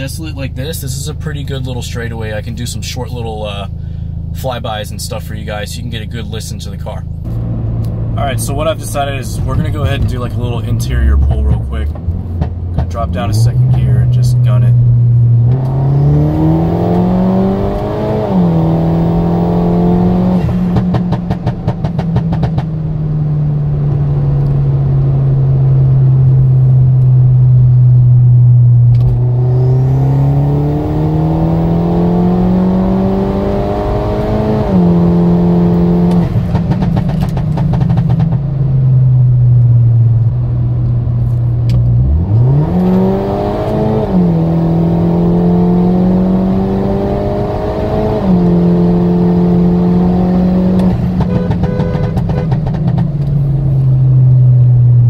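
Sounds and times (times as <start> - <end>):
exhaust pops and burbles: 6.8 - 15.8, 20.1 - 23.3, 35.7 - 40.2, 50.7 - 53.5
car engine accelerating: 6.8 - 55.0.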